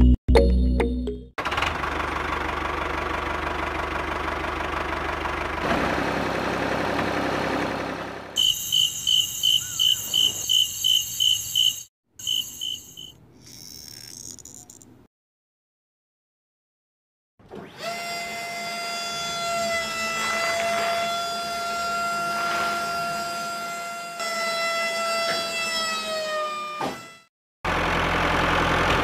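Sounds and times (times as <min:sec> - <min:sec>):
short high chirps: 0:08.4 - 0:14.8
small electric motor whirring: 0:08.4 - 0:14.9.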